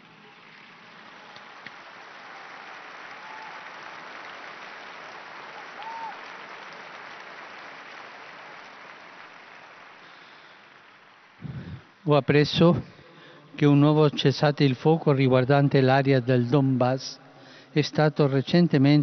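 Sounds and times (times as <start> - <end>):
large crowd applauding: 0.0 - 13.4.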